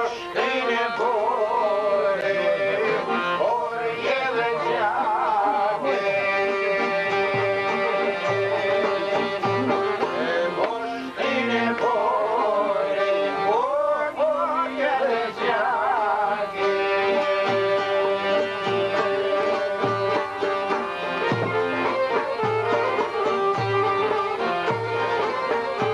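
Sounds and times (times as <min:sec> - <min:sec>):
violin melody: 0:00.0 - 0:25.9
plucked lutes over drone: 0:16.3 - 0:25.9.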